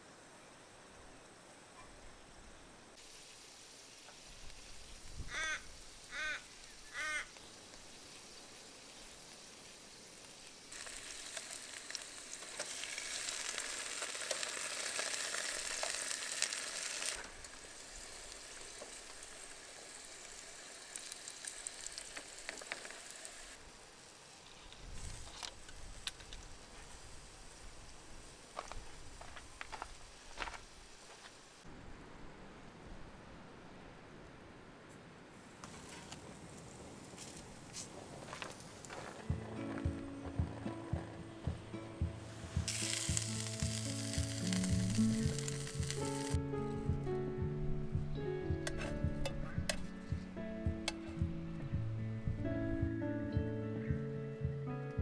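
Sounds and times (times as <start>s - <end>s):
food sizzling on hot coals: 3.0s - 31.7s, 35.6s - 51.2s
bird calling: 5.3s - 7.4s.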